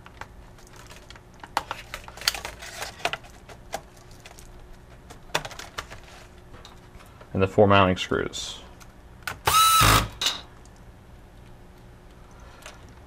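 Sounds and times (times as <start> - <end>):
laptop keyboard clicks and clatter: 0.0 - 6.0.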